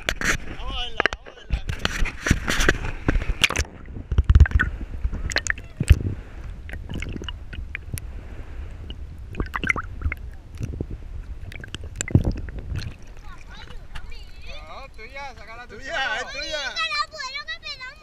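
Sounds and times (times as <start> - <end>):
underwater gurgling and sloshing: 0.0 - 15.1
low thumps: 3.0 - 13.1.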